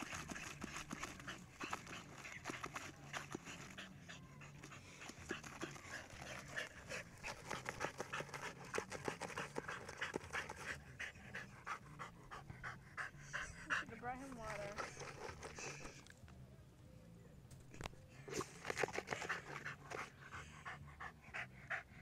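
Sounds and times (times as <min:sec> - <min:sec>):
paws scraping dry dirt: 0:00.0 - 0:11.4
dog panting: 0:00.0 - 0:16.0, 0:18.4 - 0:22.0.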